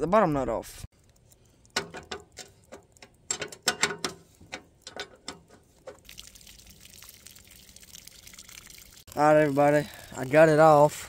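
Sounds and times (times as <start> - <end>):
water trickling: 0.9 - 11.0.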